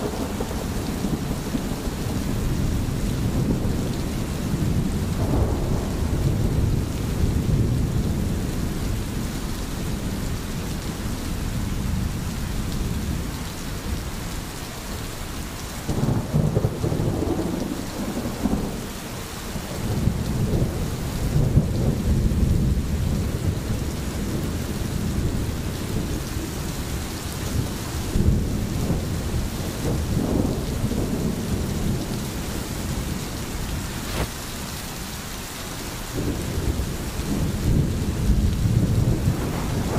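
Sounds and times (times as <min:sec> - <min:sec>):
thunder rumbling: 0:00.0 - 0:14.1, 0:15.8 - 0:34.5, 0:36.1 - 0:39.9
rain falling: 0:00.0 - 0:39.9.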